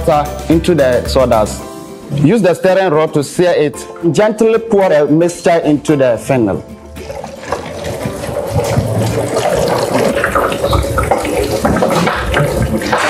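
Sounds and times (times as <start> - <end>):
water trickling into plastic jar: 7.0 - 13.0.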